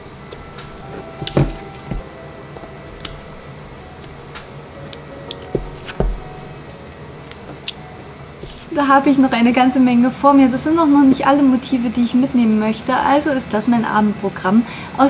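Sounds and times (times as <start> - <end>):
stamps knocking on table: 1.2 - 2.1, 5.5 - 6.3.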